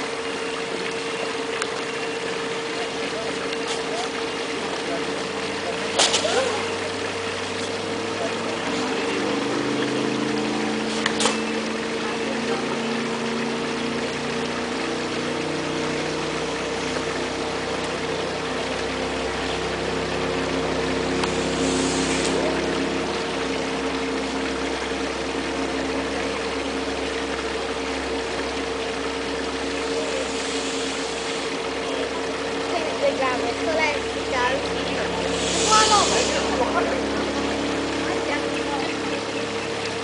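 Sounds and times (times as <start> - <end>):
motor droning with held tones: 0.0 - 40.0
brief hiss: 35.4 - 36.5.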